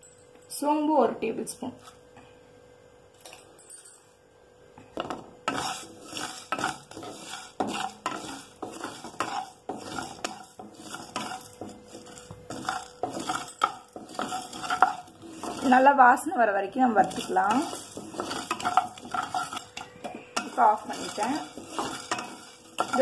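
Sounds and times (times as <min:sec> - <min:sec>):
wooden spatula stirring spices in pan: 0:05.0 - 0:23.0.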